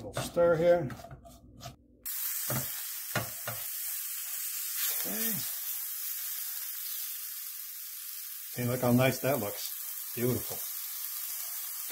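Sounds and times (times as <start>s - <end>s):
wooden spatula scraping pan: 0.0s - 1.8s
mushrooms sizzling in pan: 2.0s - 11.9s.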